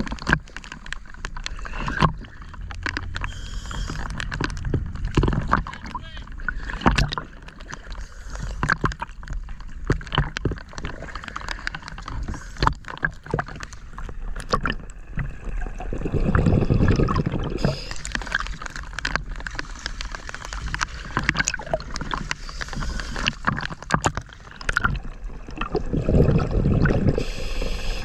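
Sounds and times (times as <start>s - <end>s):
sea water sloshing and splashing: 0.0s - 28.0s
muffled underwater gurgling: 1.4s - 28.0s.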